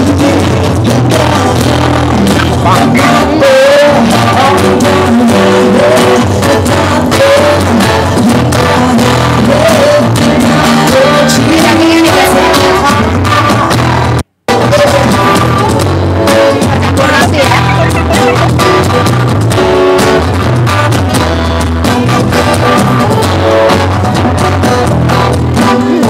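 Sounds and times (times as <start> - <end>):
song with singing: 0.0 - 18.8.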